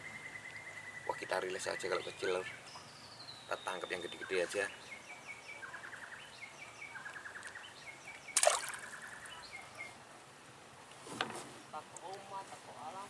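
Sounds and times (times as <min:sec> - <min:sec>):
birds chirping and trilling: 0:00.0 - 0:10.0
fish splashing into water: 0:08.4 - 0:09.0.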